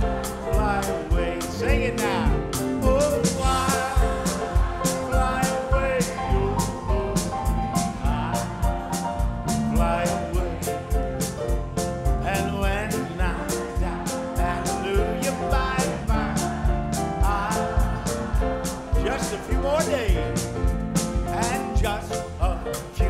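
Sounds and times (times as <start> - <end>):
country gospel band music: 0.0 - 23.0
steady drum beat: 0.0 - 23.0.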